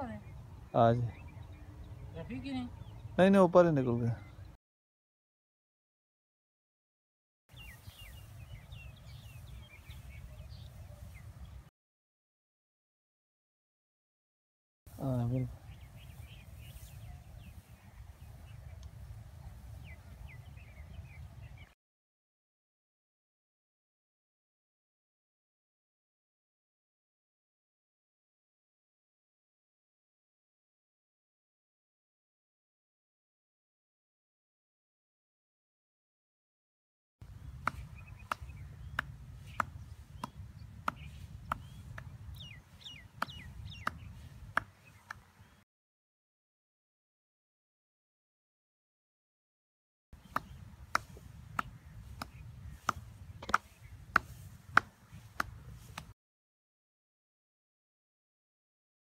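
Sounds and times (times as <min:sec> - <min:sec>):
small birds chirping: 0:00.0 - 0:04.6, 0:07.5 - 0:11.7, 0:14.9 - 0:21.8, 0:37.2 - 0:45.6, 0:50.2 - 0:56.2.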